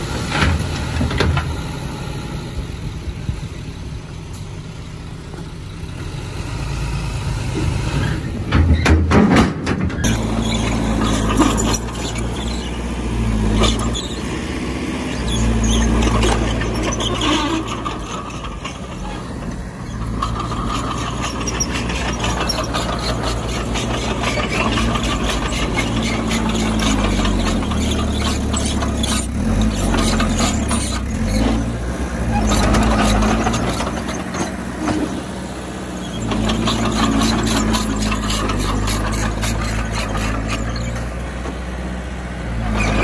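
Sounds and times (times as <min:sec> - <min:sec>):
heavy machinery engine drone: 0:00.0 - 0:43.0
squealing: 0:10.0 - 0:14.4, 0:15.0 - 0:34.6, 0:36.0 - 0:41.1.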